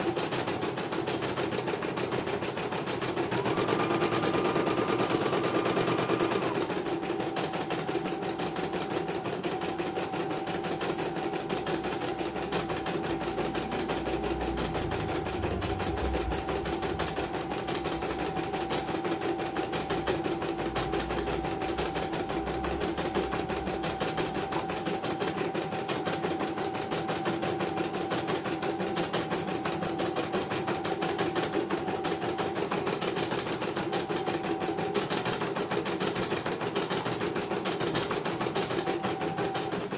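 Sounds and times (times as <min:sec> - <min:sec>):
embroidery machine stitching: 0:00.0 - 0:39.9
motor hum: 0:13.8 - 0:18.6
deep rumble: 0:14.6 - 0:17.3.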